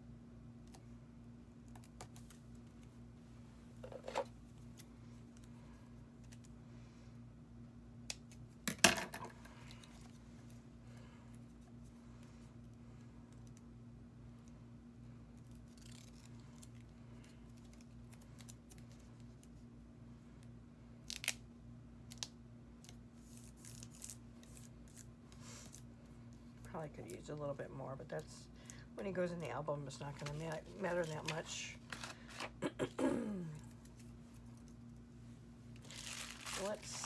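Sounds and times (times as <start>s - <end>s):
paper crinkling: 30.0s - 32.6s, 35.8s - 37.0s.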